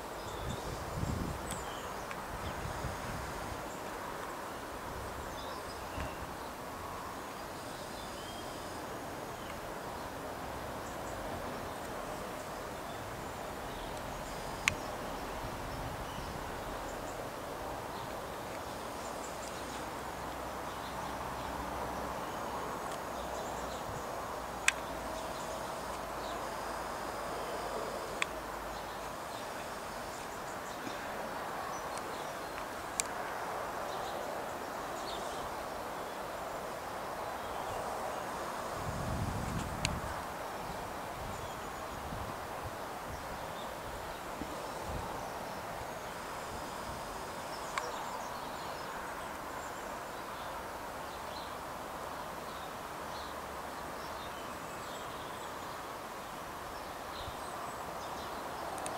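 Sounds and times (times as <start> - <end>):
outdoor background noise: 0.0 - 58.9.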